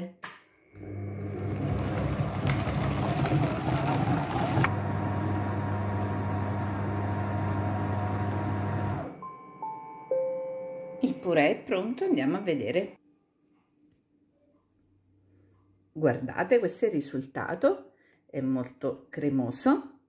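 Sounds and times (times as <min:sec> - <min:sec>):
food processor blending: 0:00.8 - 0:09.1.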